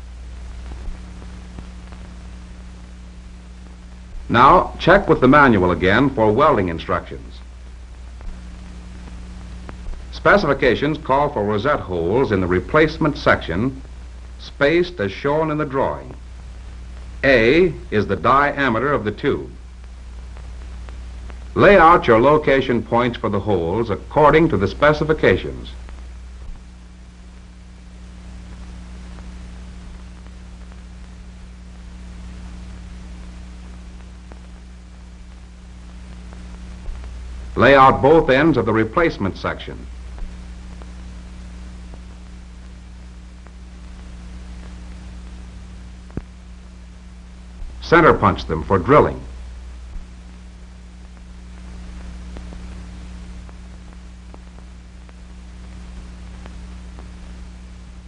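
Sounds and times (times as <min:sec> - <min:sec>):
film soundtrack hum and hiss: 0:00.0 - 0:58.0
faint clicks: 0:07.4 - 0:10.1, 0:19.8 - 0:21.6, 0:32.1 - 0:37.6
faint ticks: 0:19.8 - 0:21.6, 0:51.0 - 0:57.4.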